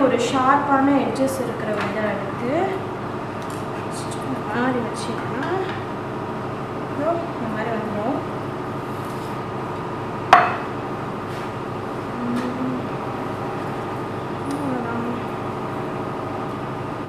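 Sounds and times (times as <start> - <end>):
steady mechanical hum: 0.0 - 17.0
kitchenware clinking: 10.3 - 10.7.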